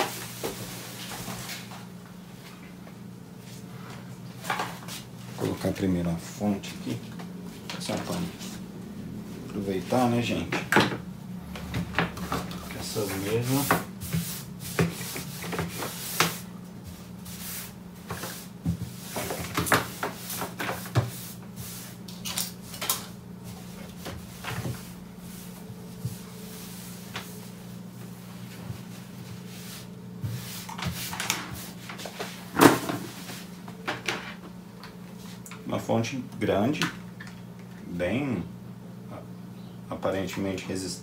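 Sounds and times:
steady low hum: 0.0 - 41.0
cloth wiping wooden desk: 12.8 - 22.0, 23.4 - 32.5.

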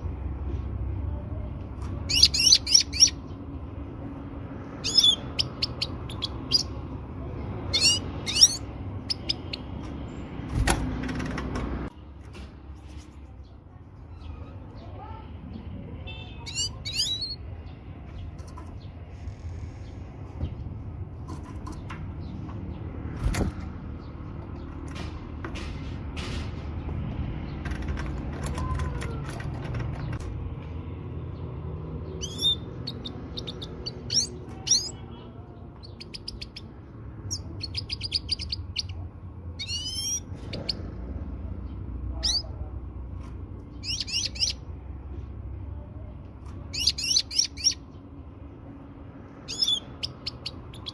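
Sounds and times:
goldfinch twittering chirps: 2.1 - 3.2, 4.8 - 6.7, 46.8 - 47.8.

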